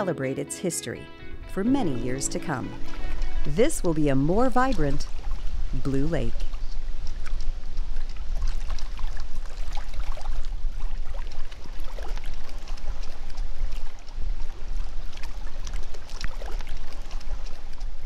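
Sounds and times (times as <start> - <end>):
wind rumble on microphone: 2.8 - 18.0
small waves lapping on rocks: 4.6 - 18.0.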